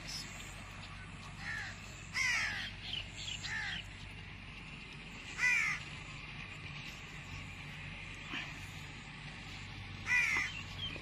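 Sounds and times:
crows cawing: 1.3 - 3.9, 5.2 - 6.0, 9.9 - 10.9.

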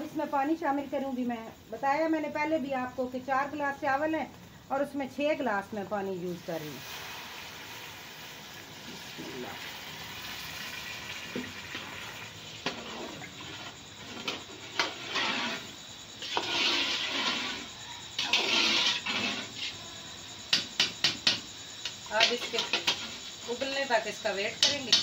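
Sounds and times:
water pouring into metal pot: 6.8 - 13.7
spoon knocking against pot: 20.5 - 21.5, 24.6 - 25.0.

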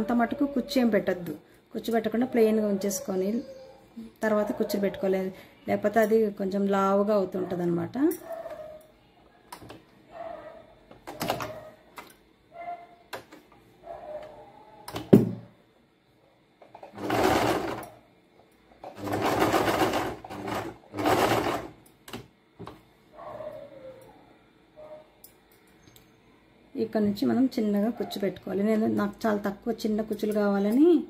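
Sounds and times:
sewing machine stitching: 16.7 - 18.0, 18.8 - 21.8.

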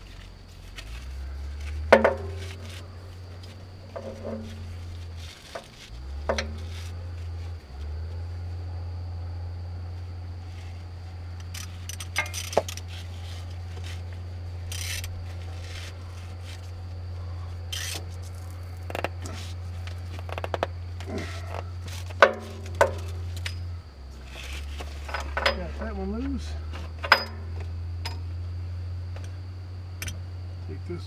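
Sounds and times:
steady low hum: 0.0 - 31.0
metallic clicks and scrapes of tools: 11.4 - 14.0, 14.7 - 15.9, 17.7 - 18.4.

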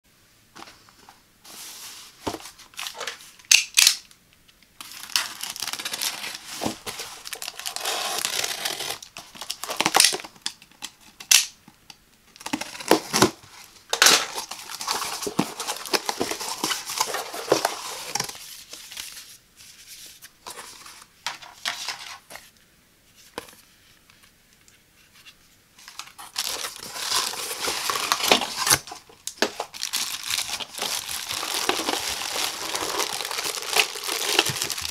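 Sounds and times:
packing tape tearing: 4.8 - 10.3, 26.2 - 34.9
plastic rustling: 4.8 - 10.8, 12.3 - 22.4, 25.8 - 34.9.

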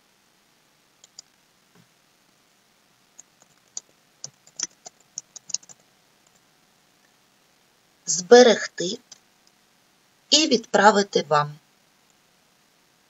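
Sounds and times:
computer keyboard key clicks: 3.2 - 6.4.

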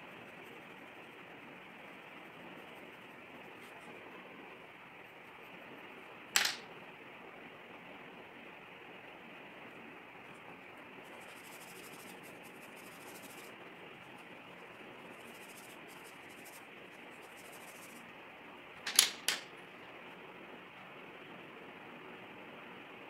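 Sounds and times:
pencil scratching on paper: 11.0 - 14.3, 15.1 - 18.0.

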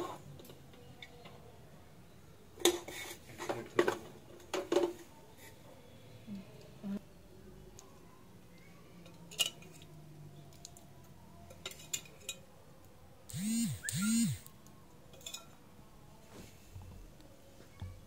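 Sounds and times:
short squeaks: 13.3 - 14.4.

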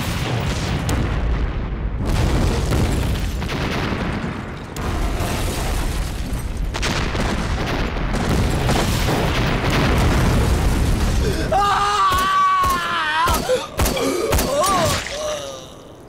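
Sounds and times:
explosions rumbling and booming: 0.0 - 14.6
sharp cracks: 2.2 - 15.4.

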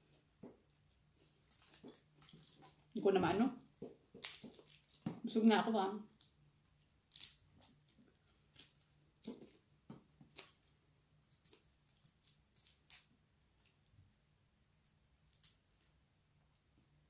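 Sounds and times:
shrimp shells crackling being peeled: 1.5 - 2.8, 4.2 - 5.2, 6.7 - 9.6, 10.3 - 13.1, 14.6 - 15.9.

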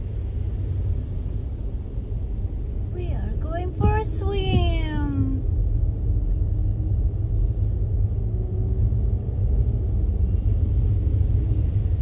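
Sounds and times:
car cabin rumble: 2.6 - 10.7.

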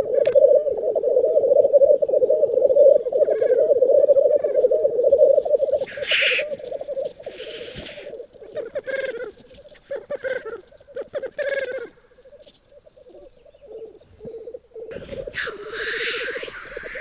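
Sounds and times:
black grouse bubbling song: 0.0 - 17.0
grouse hissing call: 0.0 - 17.0
loud grouse calls: 0.0 - 17.0.

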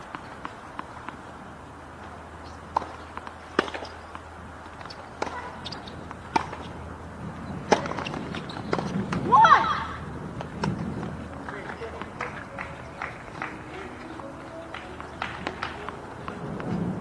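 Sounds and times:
racket striking tennis ball: 0.0 - 1.3, 2.0 - 6.8, 7.6 - 9.3, 11.7 - 16.9
tennis ball bouncing: 0.0 - 17.0.

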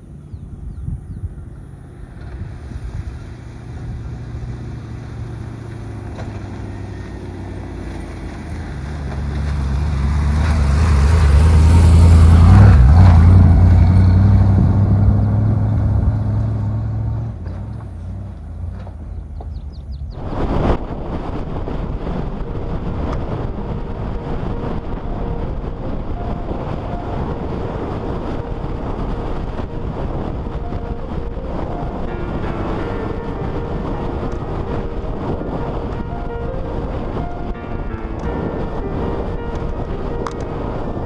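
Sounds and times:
vehicle engine driving past: 1.2 - 20.2.

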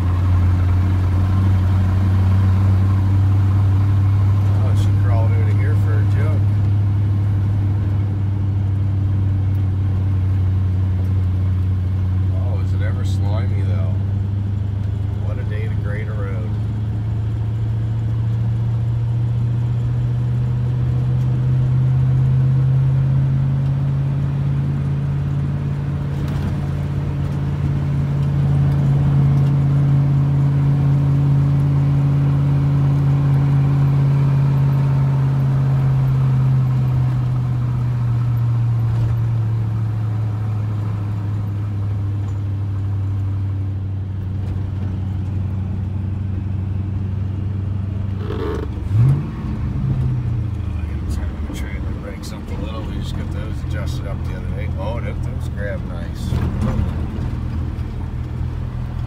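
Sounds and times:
truck engine pulling under load: 31.2 - 59.0.

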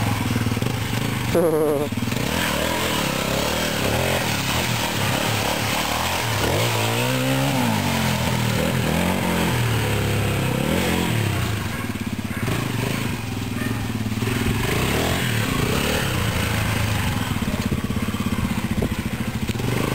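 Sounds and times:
dirt bike engine revving: 0.0 - 19.9.

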